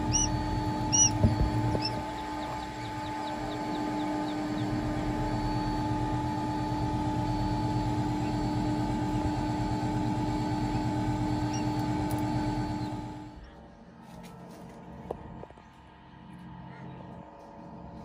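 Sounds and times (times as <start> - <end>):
faint high chick peeps: 0.0 - 5.0, 11.4 - 12.0
incubator motor hum: 0.0 - 13.9.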